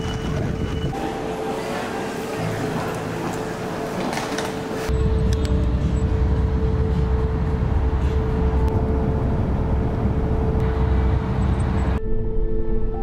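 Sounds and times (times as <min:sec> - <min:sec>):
car road noise rumble: 0:04.6 - 0:12.0.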